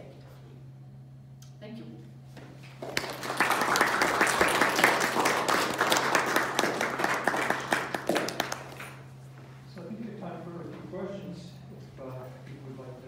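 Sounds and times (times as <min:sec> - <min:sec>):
audience applauding: 0:02.8 - 0:09.0.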